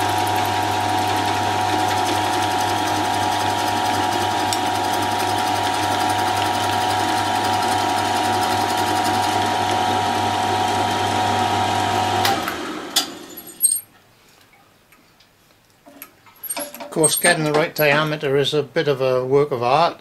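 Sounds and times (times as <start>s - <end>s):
sharp metal clinks: 13.2s - 13.8s, 16.4s - 18.1s.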